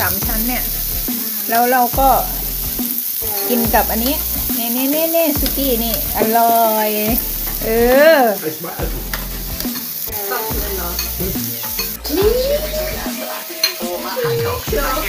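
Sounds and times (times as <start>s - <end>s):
meat sizzling on a grill: 0.0s - 15.0s
drawn-out vocal sound: 10.1s - 15.0s.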